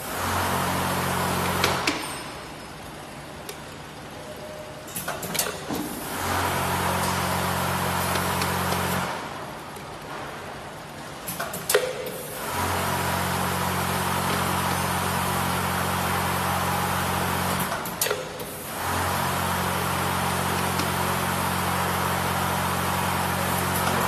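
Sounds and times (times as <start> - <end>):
vibratory feeder electric hum: 11.8 - 24.0.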